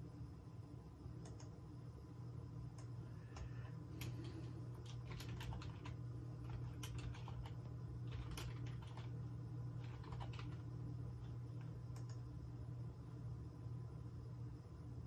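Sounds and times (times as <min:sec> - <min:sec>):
steady low hum: 0:00.0 - 0:15.0
computer keyboard clicks: 0:01.2 - 0:01.5, 0:02.8 - 0:09.2, 0:09.8 - 0:12.2.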